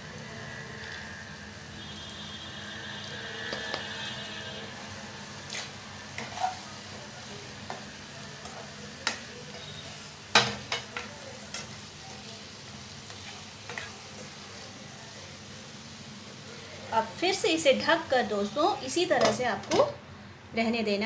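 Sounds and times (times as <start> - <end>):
food sizzling in frying pan: 0.0 - 20.0
spatula scraping and tapping pan: 5.5 - 7.0, 7.6 - 11.8, 13.0 - 14.3.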